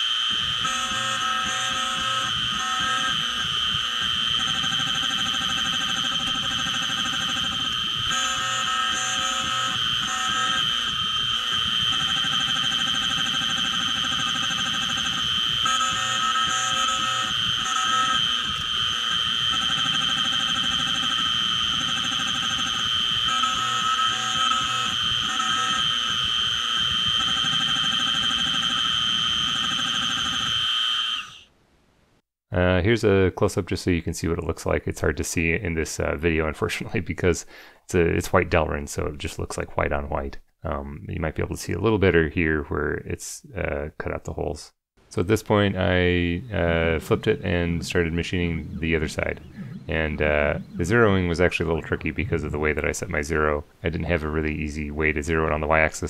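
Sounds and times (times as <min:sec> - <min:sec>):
mill spindle whining: 0:00.0 - 0:31.4, 0:46.2 - 0:53.2.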